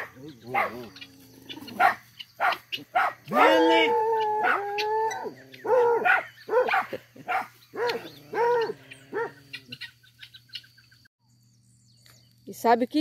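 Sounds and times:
puppy yapping: 0:00.0 - 0:09.4
faint chirping: 0:00.0 - 0:12.8.

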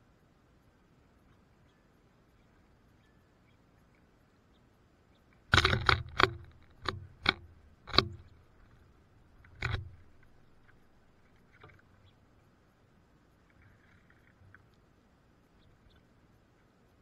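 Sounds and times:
birds knocking on wooden feeder: 0:05.5 - 0:11.9.

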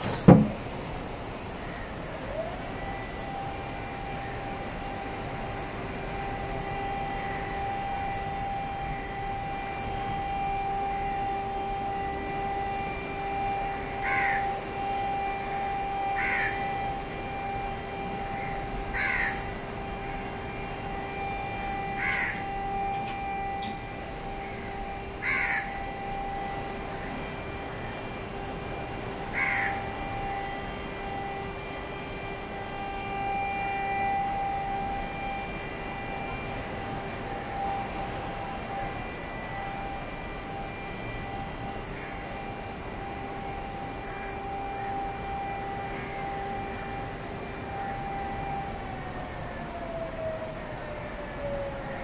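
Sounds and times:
constant hum: 0:00.0 - 0:52.0
faint steady tones: 0:00.0 - 0:52.0
crow cawing: 0:14.0 - 0:14.5, 0:16.2 - 0:16.6, 0:18.4 - 0:19.5, 0:22.0 - 0:22.4, 0:25.2 - 0:25.7, 0:29.3 - 0:29.8.

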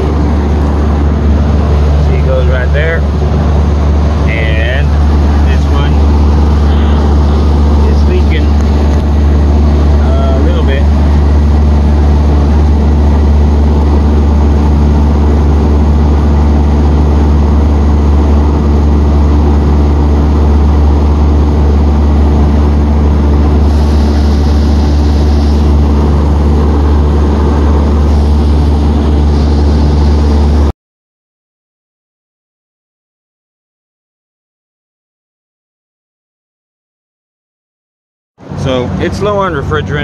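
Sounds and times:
refrigeration unit humming: 0:00.0 - 0:30.7, 0:38.4 - 0:40.0.

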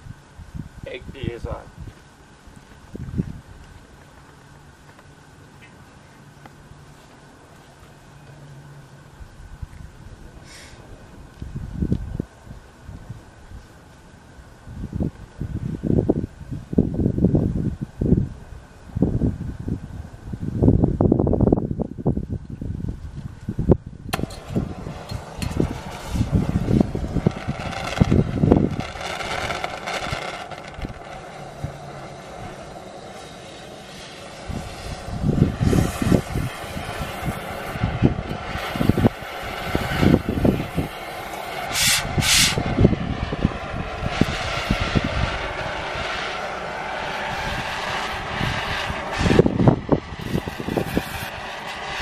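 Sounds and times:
wind buffeting microphone: 0:00.0 - 0:04.0, 0:09.2 - 0:13.7, 0:14.5 - 0:52.0
cutting torch hissing: 0:10.4 - 0:10.9, 0:24.1 - 0:52.0
short sharp torch hisses: 0:10.4 - 0:10.9, 0:24.1 - 0:42.7, 0:50.1 - 0:52.0.

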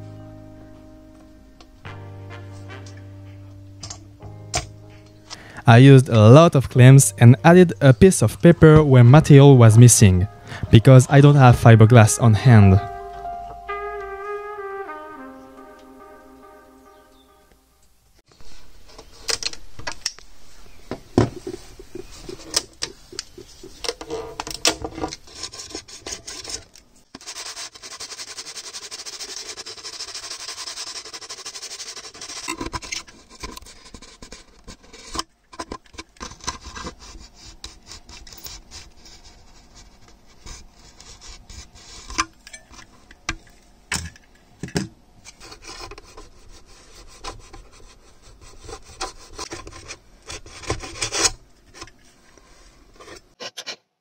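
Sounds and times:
razor blade scraping epoxy: 0:27.2 - 0:35.2.

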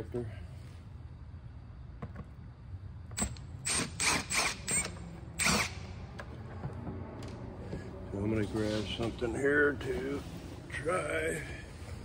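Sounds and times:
cordless driver whining: 0:03.2 - 0:06.4.

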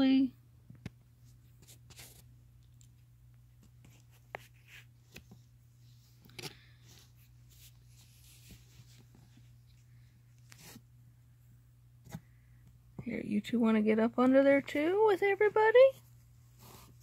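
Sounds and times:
low room hum: 0:00.0 - 0:17.0
kittens rustling and scratching: 0:01.0 - 0:11.0, 0:15.4 - 0:17.0.

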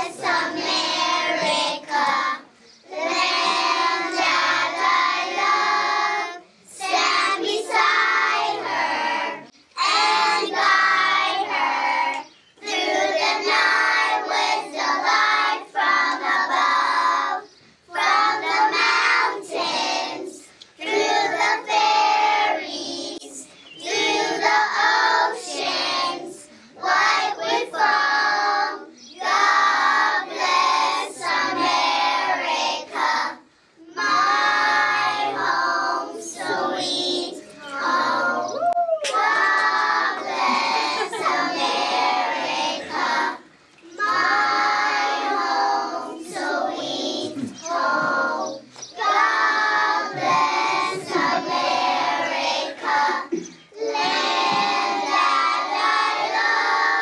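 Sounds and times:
children singing: 0:00.0 - 0:57.0.

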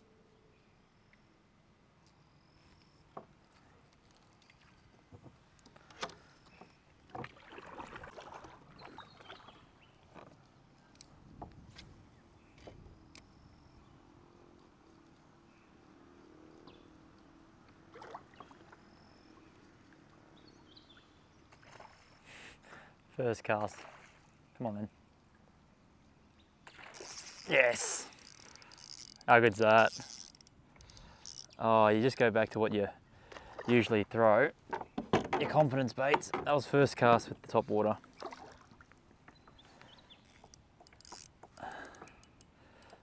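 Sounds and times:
handling clicks and knocks: 0:34.1 - 0:36.7.

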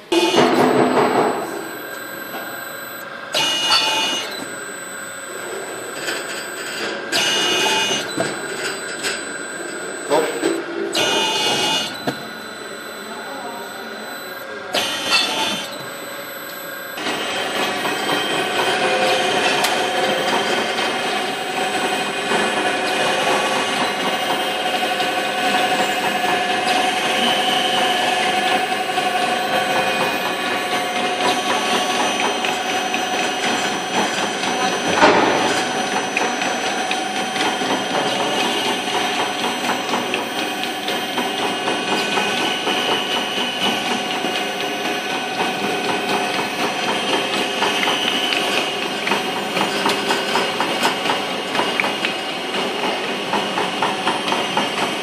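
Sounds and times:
dosing machine noise bursts: 0:00.0 - 0:55.0
machine drives whining: 0:00.0 - 0:55.0.

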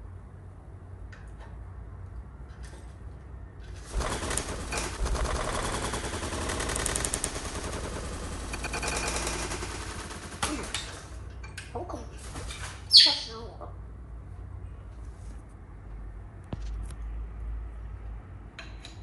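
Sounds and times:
parrot wings flapping: 0:03.8 - 0:11.2, 0:12.2 - 0:12.9.

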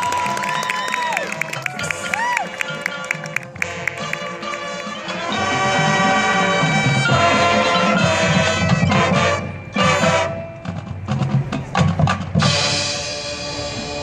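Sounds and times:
marching band held chords: 0:00.0 - 0:14.0
sharp drum and percussion hits: 0:09.8 - 0:13.0.

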